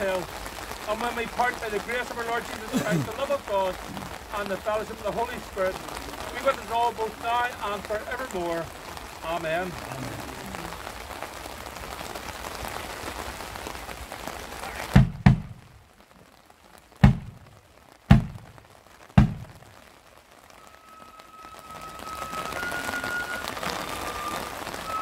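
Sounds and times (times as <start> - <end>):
steady rain falling: 0.0 - 25.0
bass drum beats: 15.0 - 15.8, 17.0 - 18.6, 19.2 - 19.7
flutes holding a note: 20.6 - 25.0.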